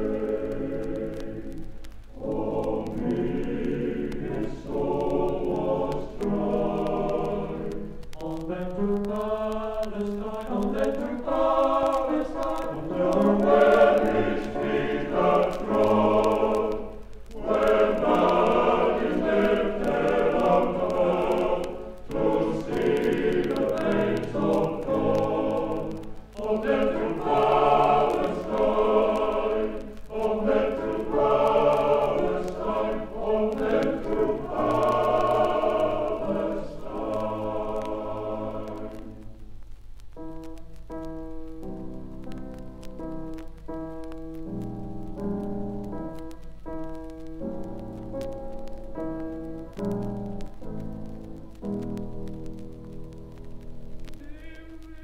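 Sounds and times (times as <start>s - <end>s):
male voice choir singing: 0.0s - 1.6s, 2.2s - 39.2s, 54.1s - 55.0s.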